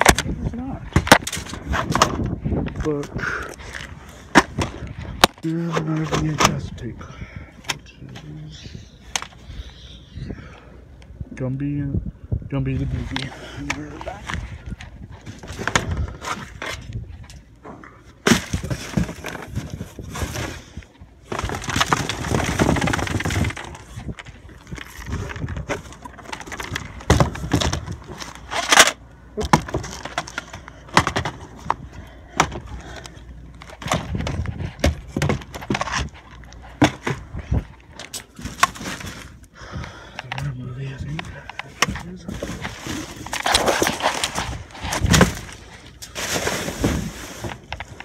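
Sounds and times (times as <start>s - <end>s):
items knocking and clattering: 0.0s - 3.0s, 17.6s - 20.6s, 21.3s - 33.0s, 33.6s - 39.3s, 41.2s - 48.0s
plastic bags and cardboard rustling: 12.8s - 48.0s.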